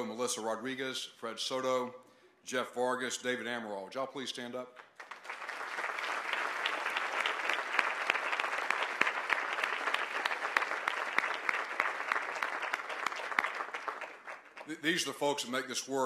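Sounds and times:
audience applauding: 4.9s - 15.0s.

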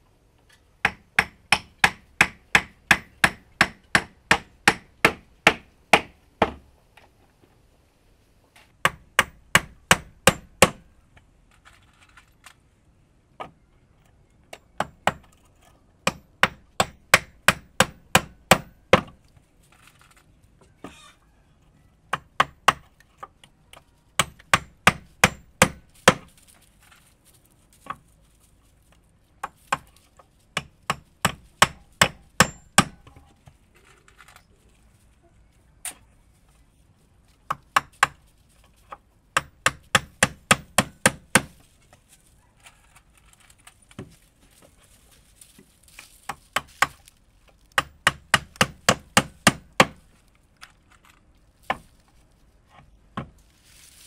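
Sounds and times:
hand tool striking wood: 0.8s - 6.6s, 8.8s - 10.9s, 14.5s - 15.4s, 16.0s - 19.2s, 22.1s - 23.1s, 24.2s - 26.4s, 29.4s - 33.2s, 37.5s - 38.2s, 38.9s - 41.7s, 46.3s - 50.2s, 51.6s - 51.9s.

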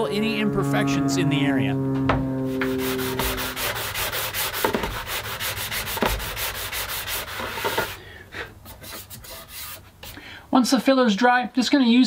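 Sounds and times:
sanding block rubbing wood: 2.5s - 8.0s, 8.7s - 9.8s.

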